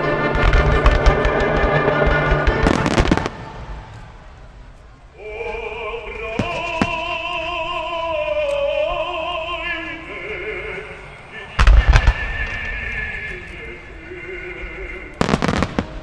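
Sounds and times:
fireworks bursting: 0.0s - 9.0s, 11.2s - 16.0s
operatic melody over loudspeakers: 0.0s - 16.0s
firework bangs: 0.2s - 4.8s, 6.2s - 7.8s, 11.6s - 13.5s, 15.2s - 16.0s.

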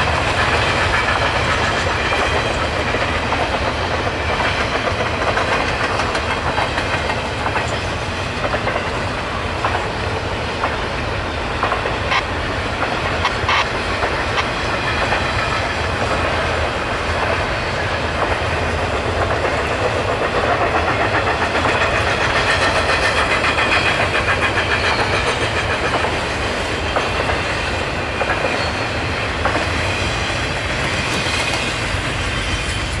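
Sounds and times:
clickety-clack over rail joints: 0.0s - 33.0s
train wheels rumbling on rail: 0.0s - 33.0s.

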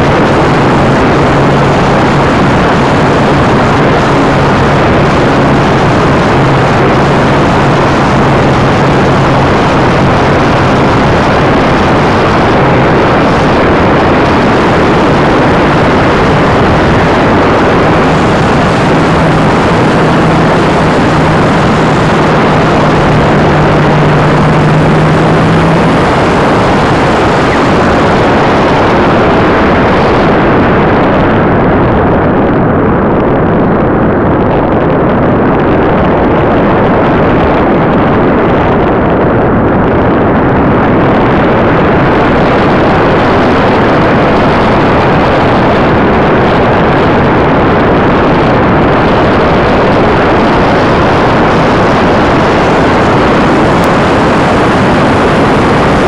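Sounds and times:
steady low hum: 0.0s - 56.0s
wind rush on microphone: 0.0s - 56.0s.

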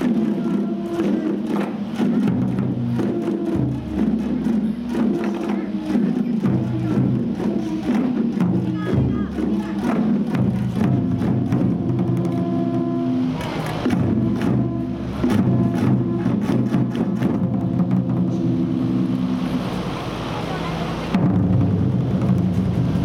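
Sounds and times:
frame drums and taiko beating: 0.0s - 19.9s, 21.1s - 23.0s.

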